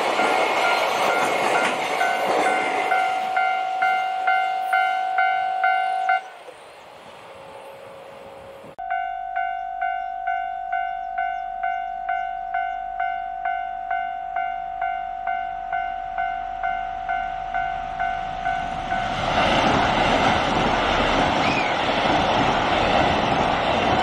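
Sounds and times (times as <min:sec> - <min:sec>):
electronic level crossing bell: 0:02.0 - 0:06.3, 0:08.8 - 0:19.0.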